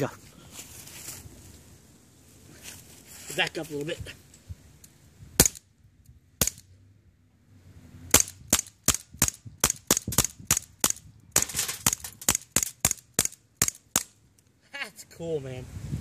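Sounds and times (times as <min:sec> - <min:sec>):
air gun cracks: 0:08.1 - 0:14.2.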